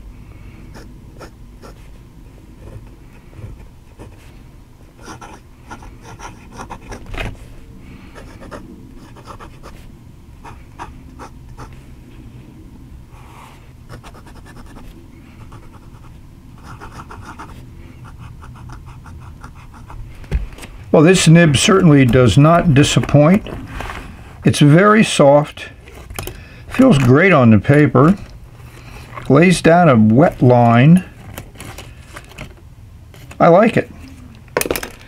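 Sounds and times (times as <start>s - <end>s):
fountain pen writing on paper: 5.0s - 7.1s, 8.2s - 9.8s, 13.9s - 20.0s.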